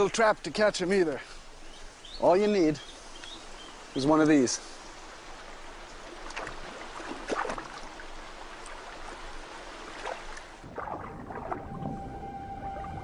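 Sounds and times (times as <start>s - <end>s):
stream water running: 0.0s - 13.0s
water splashes: 3.5s - 13.0s.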